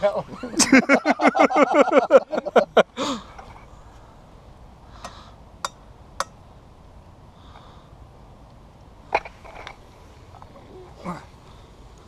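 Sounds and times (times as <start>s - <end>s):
burst of laughter: 0.4s - 2.8s.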